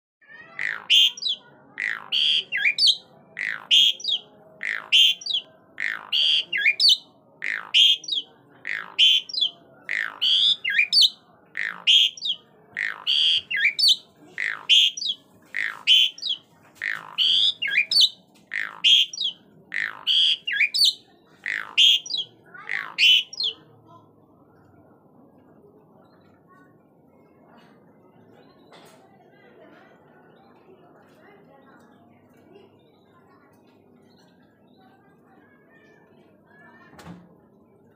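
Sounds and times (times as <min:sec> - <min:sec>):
starling singing whistles: 0:00.6 - 0:22.2, 0:22.8 - 0:23.5.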